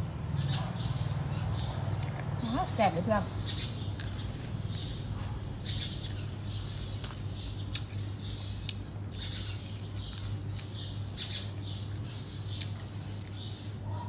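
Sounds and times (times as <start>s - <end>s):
steady low hum: 0.0s - 14.0s
wet chewing and lip smacks: 3.9s - 13.6s.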